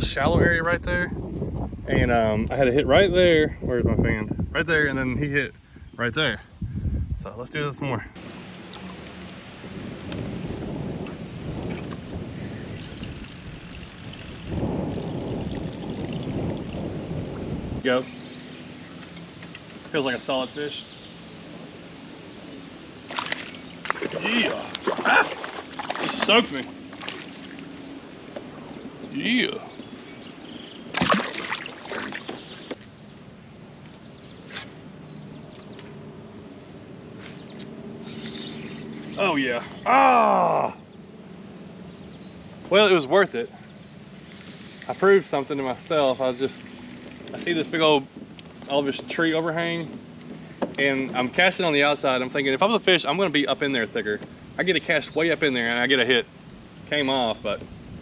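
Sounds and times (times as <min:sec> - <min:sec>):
wind buffeting microphone: 0:00.0 - 0:40.0, 0:40.8 - 0:58.0
small birds chirping: 0:11.1 - 0:58.0
knocks and splashes: 0:23.1 - 0:27.7, 0:30.9 - 0:32.8.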